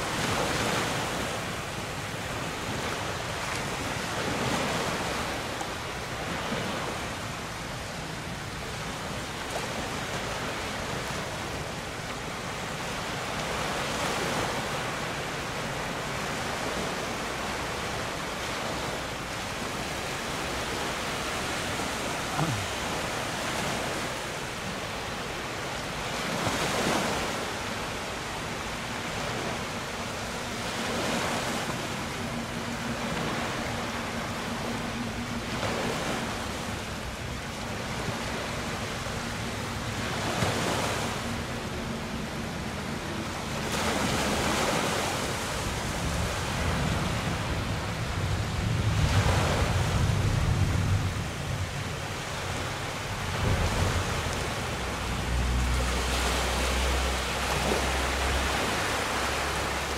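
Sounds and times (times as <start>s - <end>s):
sea water rushing and splashing: 0.0s - 59.9s
wind on microphone: 45.1s - 56.0s.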